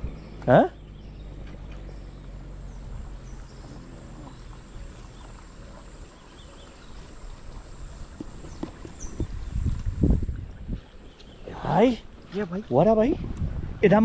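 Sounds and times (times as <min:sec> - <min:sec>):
low wind rumble: 0:00.0 - 0:14.0.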